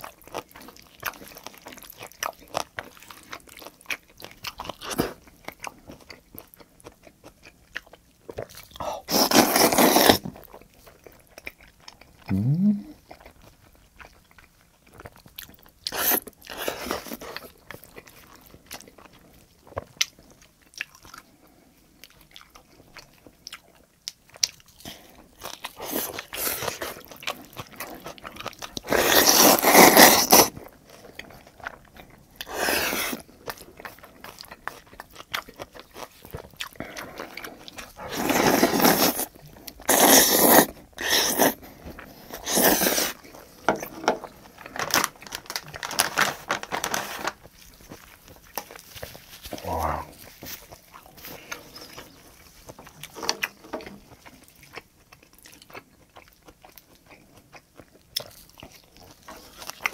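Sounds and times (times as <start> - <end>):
person chewing: 0.0 - 59.9
loud slurps: 28.9 - 30.5, 38.1 - 39.3, 39.9 - 41.6.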